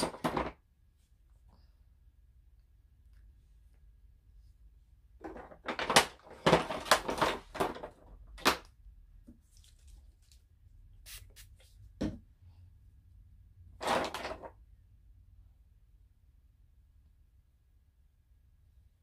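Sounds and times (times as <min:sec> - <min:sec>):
containers clattering and rustling: 0:05.2 - 0:08.6, 0:13.8 - 0:14.6.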